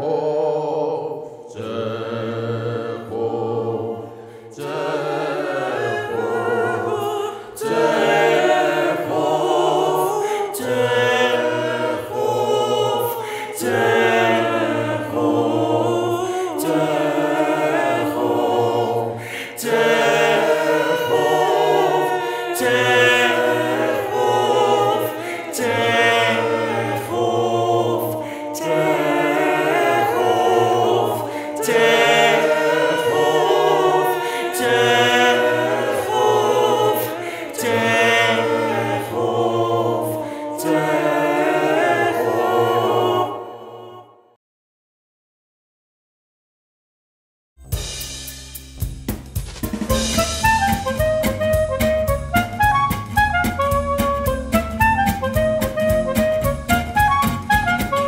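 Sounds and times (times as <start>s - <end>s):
choir singing sustained chords: 0.0s - 44.4s.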